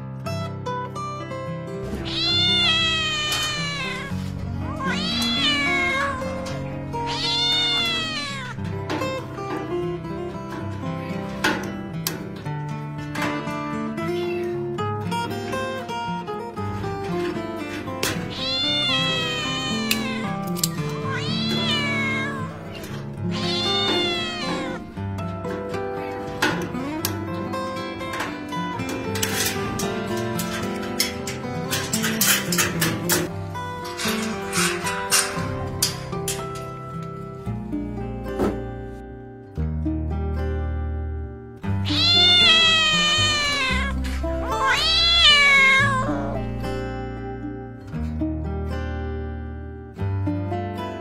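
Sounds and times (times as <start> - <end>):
guitar music: 0.0 - 51.0
kitten meowing: 1.9 - 8.6, 18.2 - 25.0, 41.8 - 46.8.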